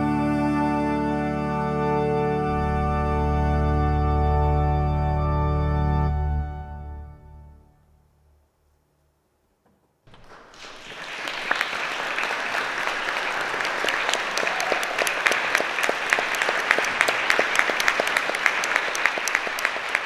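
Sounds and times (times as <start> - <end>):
audience applauding: 10.1 - 20.0.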